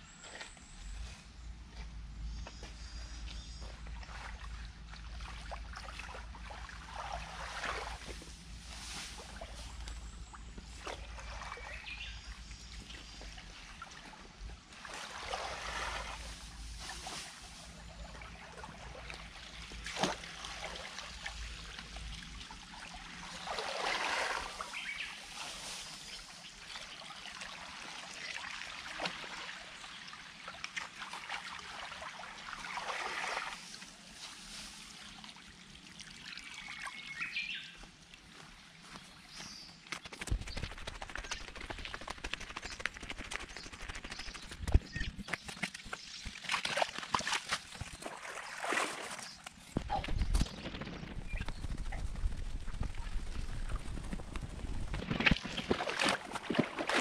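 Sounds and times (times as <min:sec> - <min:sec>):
water trickling in channel: 0:34.9 - 0:38.5.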